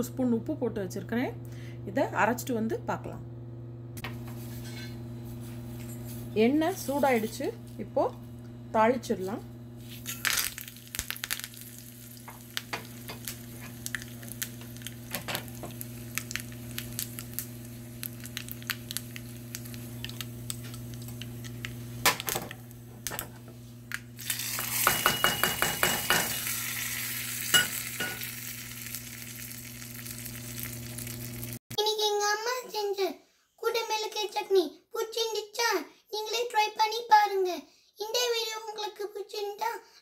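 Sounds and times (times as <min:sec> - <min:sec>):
steady low hum: 0:00.0 - 0:10.9
dense sizzling: 0:09.8 - 0:22.9, 0:23.9 - 0:31.6
spices crackling in hot oil: 0:09.8 - 0:23.2, 0:23.8 - 0:31.6.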